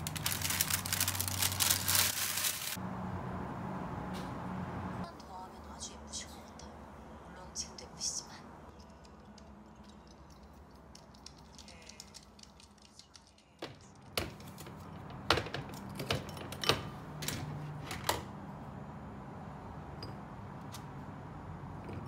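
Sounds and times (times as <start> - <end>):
objects clacking and knocking: 8.7 - 18.2.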